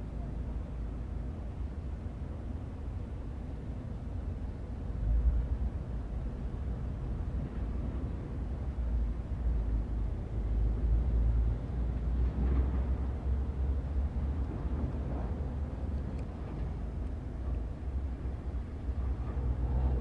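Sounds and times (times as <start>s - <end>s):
low uneven rumble: 5.0s - 20.0s.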